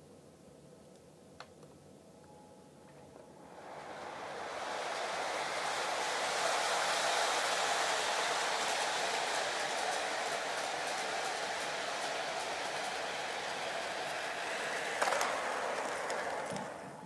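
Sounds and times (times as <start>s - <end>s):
small click: 0.9s - 1.8s
model train rolling on track: 3.4s - 17.0s.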